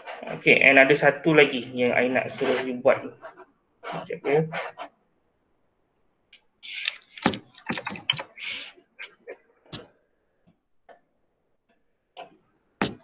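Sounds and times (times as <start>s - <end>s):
computer keyboard typing: 6.7s - 8.6s.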